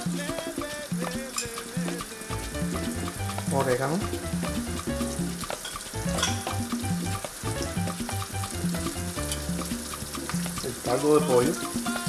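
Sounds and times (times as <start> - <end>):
onions and garlic sizzling: 1.3 - 12.0
background music with bass line: 2.3 - 11.7.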